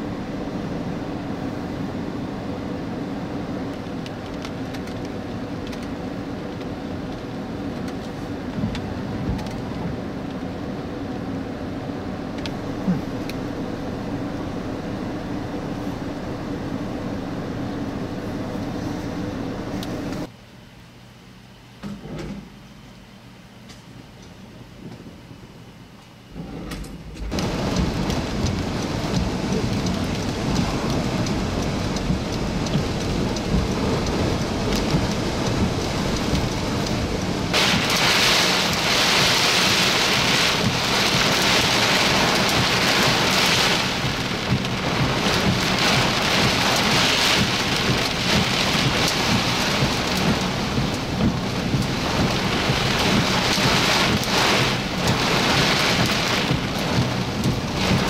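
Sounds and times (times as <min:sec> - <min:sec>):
rain hissing: 0:27.3 - 0:58.0.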